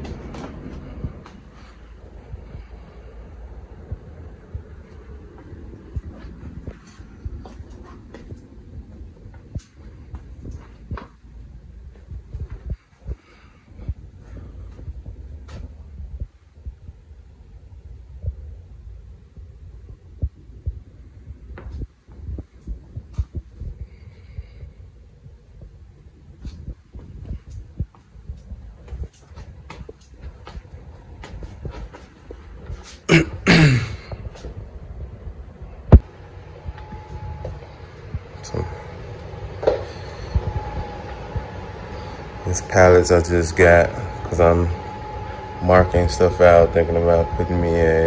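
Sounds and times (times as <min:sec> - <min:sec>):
dull low thumps: 0:00.0 - 0:42.4
footsteps on concrete: 0:03.9 - 0:15.8, 0:26.3 - 0:34.6.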